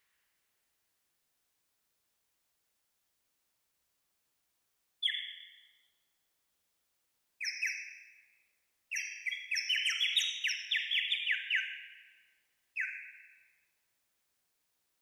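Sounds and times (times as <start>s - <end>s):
bird-call whistle chirps: 5.0s - 6.0s, 7.4s - 8.0s, 8.9s - 12.0s, 12.8s - 13.6s.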